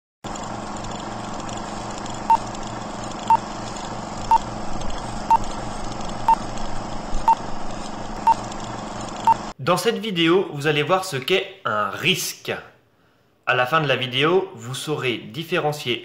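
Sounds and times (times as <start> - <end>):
hiss with faint crackle: 0.3 - 9.6.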